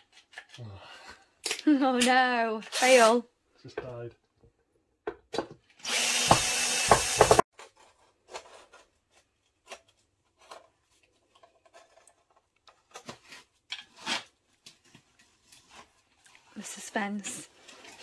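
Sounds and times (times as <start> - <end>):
power drill running: 5.8 - 7.4.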